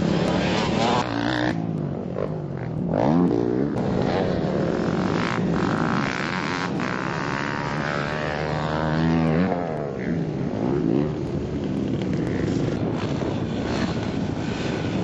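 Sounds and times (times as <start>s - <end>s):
dirt bike engine revving: 0.0s - 1.6s, 2.6s - 11.1s.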